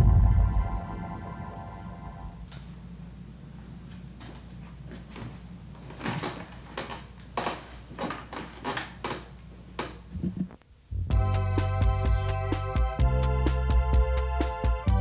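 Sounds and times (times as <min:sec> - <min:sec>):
loud music: 0:00.0 - 0:02.4, 0:11.1 - 0:15.0
low hum: 0:00.0 - 0:03.3, 0:10.1 - 0:11.4.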